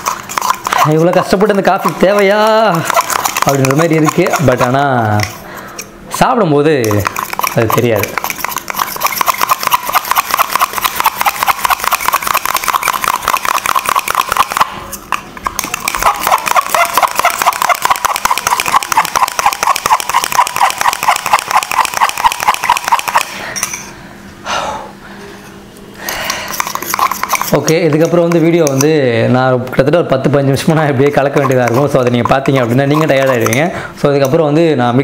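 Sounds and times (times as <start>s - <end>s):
spoon clinking in metal tumbler: 0.0s - 5.4s, 6.8s - 14.6s, 15.4s - 23.9s, 26.5s - 29.0s, 31.2s - 33.7s.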